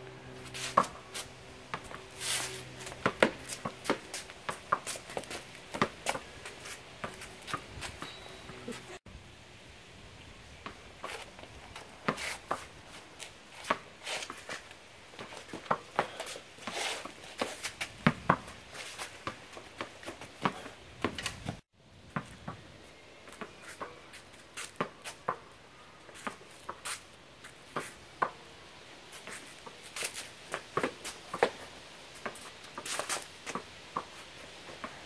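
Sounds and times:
scraping sounds: 0.2 - 9.0, 11.0 - 14.7, 15.3 - 19.2
tennis ball struck by rackets: 1.7 - 6.2
ball bouncing on concrete: 2.7 - 8.6, 17.0 - 18.6, 19.2 - 22.6, 24.6 - 25.5.

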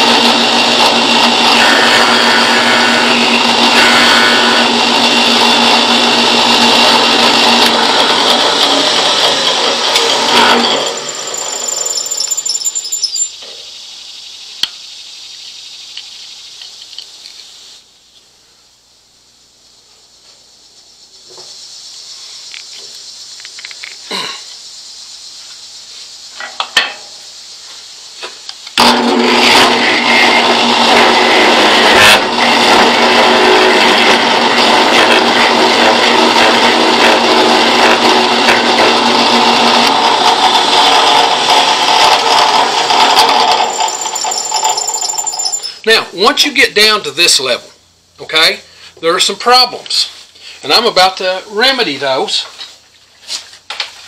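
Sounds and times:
carving bit grinding wood: 0.0 - 13.3, 29.2 - 45.8.

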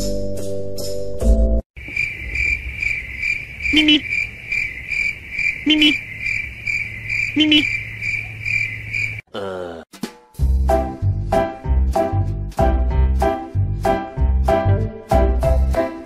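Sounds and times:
cricket chirping trill: 1.8 - 9.2
short lower call: 3.7 - 4.1, 5.6 - 6.0, 7.4 - 7.7
upbeat background music: 10.0 - 16.0.

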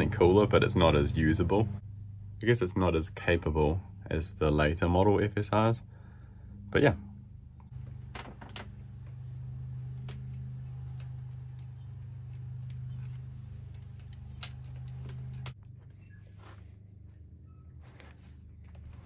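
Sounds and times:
steady low hum: 0.0 - 19.0
bicycle chain clicking and rattling: 7.8 - 15.6.

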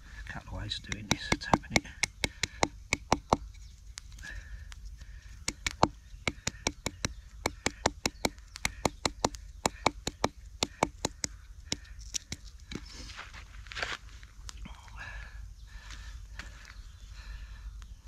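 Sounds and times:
wooden baton knocking on stem: 0.8 - 3.5, 5.4 - 12.8.

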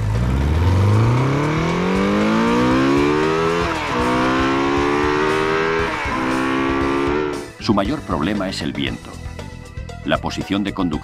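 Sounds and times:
motorcycle engine accelerating: 0.0 - 7.6.

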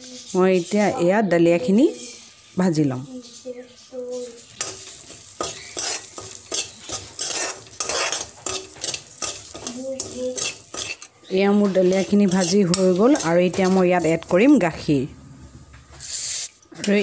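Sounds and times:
light sizzle: 0.0 - 17.0
steel spoon scraping pan: 4.2 - 14.5.

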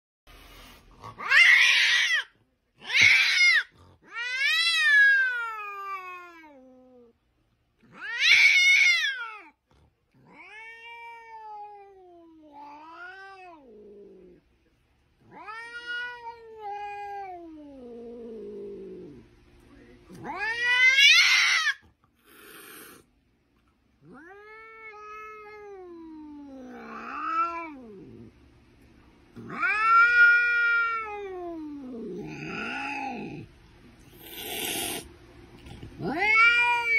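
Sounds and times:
cat yowling angrily: 1.1 - 6.8, 7.8 - 9.6, 10.2 - 13.7, 15.2 - 17.9, 20.2 - 23.0, 24.1 - 28.0, 29.4 - 33.4, 36.0 - 36.9.

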